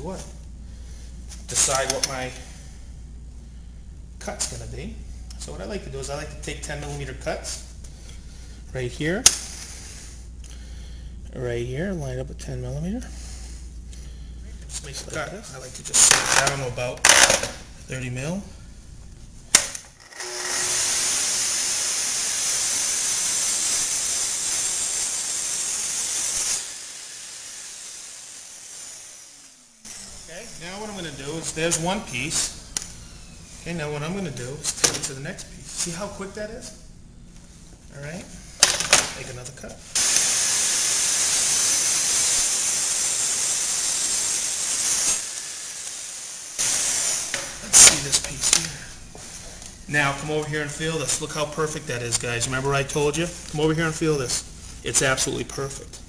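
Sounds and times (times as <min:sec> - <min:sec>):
track saw cutting panel: 0:20.0 - 0:30.2, 0:40.0 - 0:48.6.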